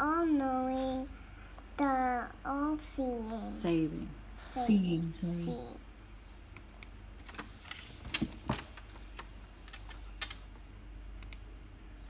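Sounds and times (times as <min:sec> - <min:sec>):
laptop keyboard keys clicking: 0:09.2 - 0:10.4.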